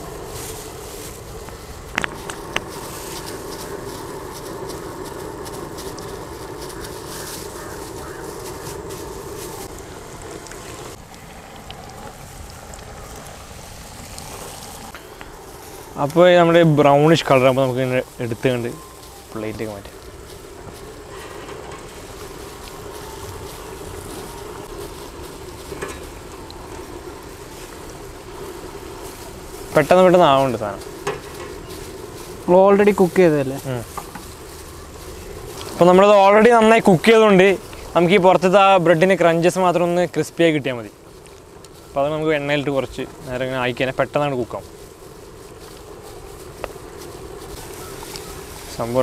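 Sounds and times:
meat deep-frying in oil: 0.0 - 21.2
low steady rushing: 0.0 - 49.0
oil popping: 0.0 - 49.0.

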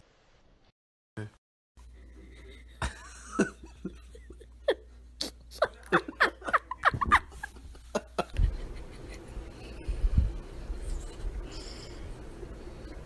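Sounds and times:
person giggling: 2.4 - 9.5.

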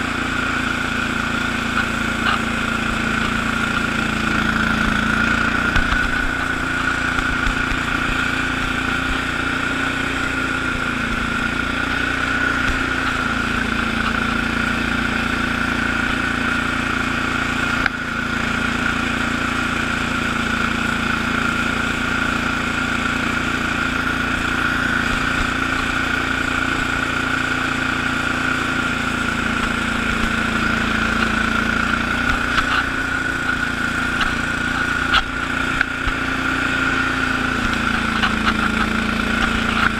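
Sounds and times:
garden tractor engine under load: 0.0 - 39.9.

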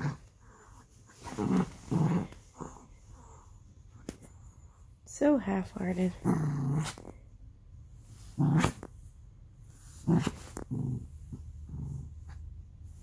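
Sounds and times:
small dog growling: 0.0 - 3.6, 6.2 - 7.2, 8.1 - 9.0, 9.8 - 12.5.

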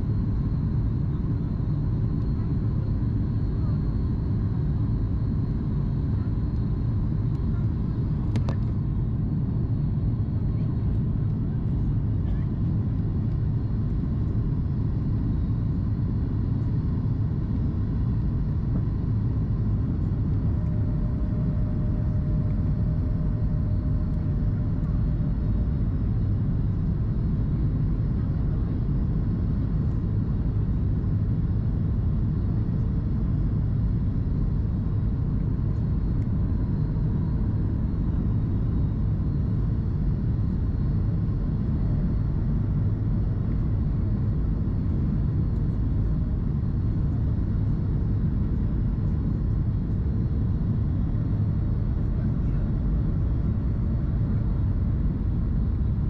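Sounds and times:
airliner cabin rumble: 0.0 - 56.0
faint higher hum: 0.0 - 56.0.

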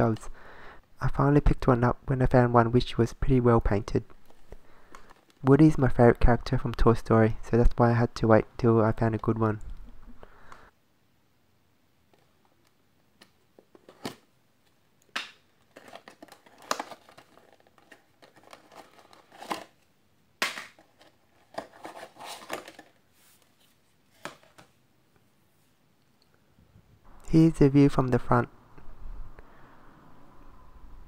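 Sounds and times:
plastic packaging crinkling and clicking: 15.1 - 19.8, 20.6 - 23.0.

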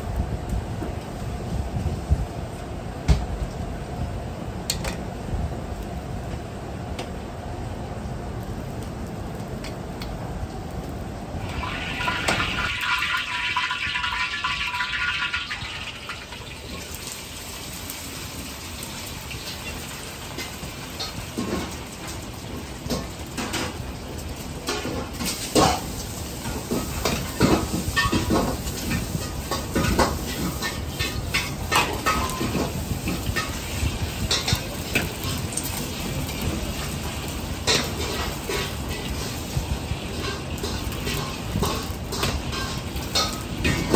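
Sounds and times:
wok range burner rushing: 0.0 - 43.9
metal ladle scraping a wok: 40.1 - 43.9.

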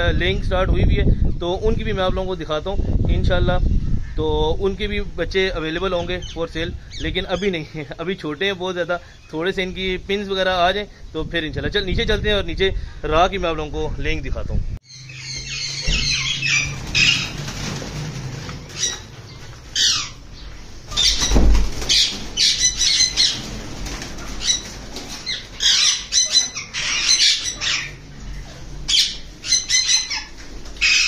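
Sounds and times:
parrots screeching: 14.9 - 17.6, 18.6 - 20.2, 20.9 - 31.0
low thump: 15.8 - 16.3, 21.2 - 21.8.

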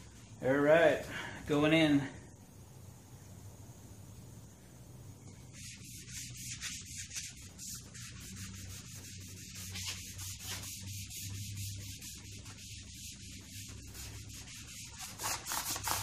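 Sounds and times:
cloth rubbing over wood: 5.5 - 16.0.

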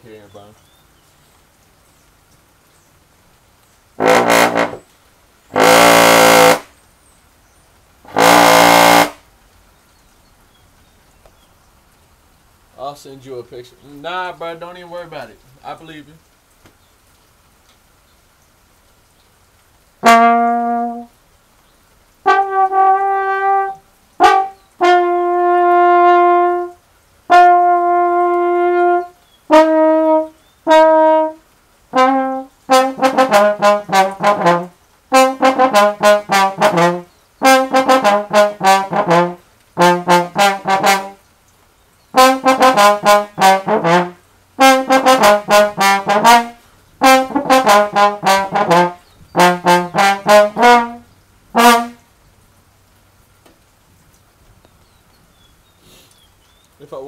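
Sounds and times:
solo trombone: 4.0 - 4.9, 5.5 - 6.8, 8.0 - 9.3, 20.0 - 21.2, 22.2 - 41.2, 42.1 - 52.1.

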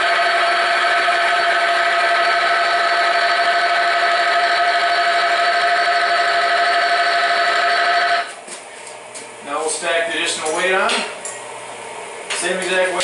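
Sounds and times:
electric motor whining: 0.0 - 8.3.

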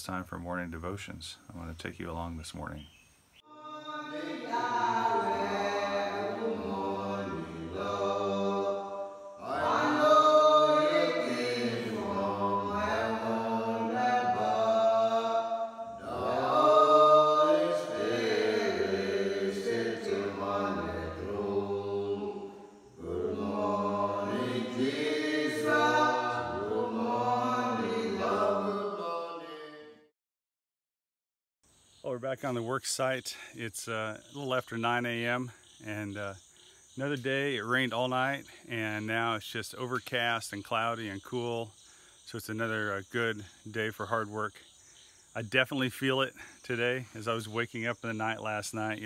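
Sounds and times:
group singing a worship song: 3.4 - 30.0.

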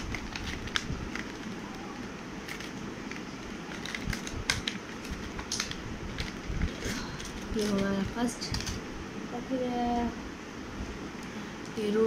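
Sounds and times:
plastic pouch crinkling: 0.0 - 8.8.

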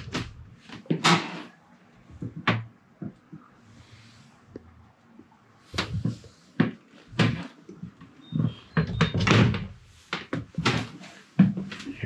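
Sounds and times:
door knocks and clunks: 8.4 - 9.8.

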